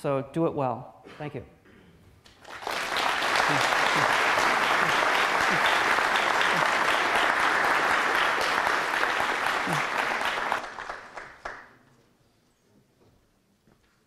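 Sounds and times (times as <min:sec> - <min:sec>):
audience applauding: 0:02.3 - 0:11.8.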